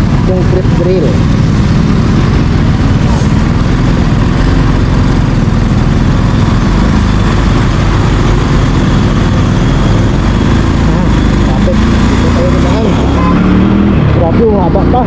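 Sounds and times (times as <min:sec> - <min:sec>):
motorcycle engine running: 0:00.0 - 0:15.0
road noise: 0:00.0 - 0:15.0.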